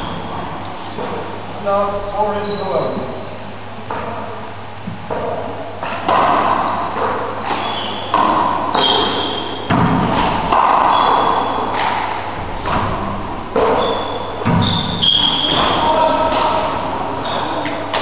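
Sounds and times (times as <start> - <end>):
handball thuds echoing in court: 4.9 - 16.8
shoes squeaking on wooden floor: 6.6 - 8.1, 8.7 - 9.6, 10.9 - 11.6, 13.6 - 16.3, 17.1 - 17.7.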